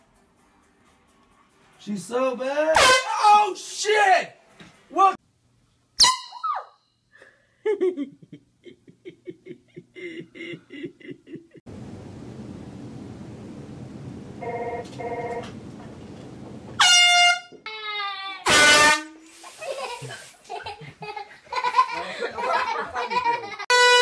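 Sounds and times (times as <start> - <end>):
yelp: 6.3 - 6.8
air horn blasts: 16.8 - 17.6, 18.4 - 19.2, 23.7 - 24.0.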